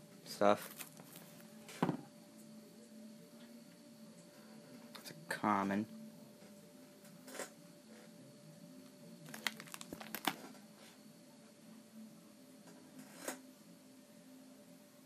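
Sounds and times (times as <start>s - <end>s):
faint steady hum: 0.0s - 15.0s
plastic binder pages turning: 0.6s - 1.3s, 9.2s - 10.6s
soft plastic crinkles and clicks: 8.8s - 10.6s.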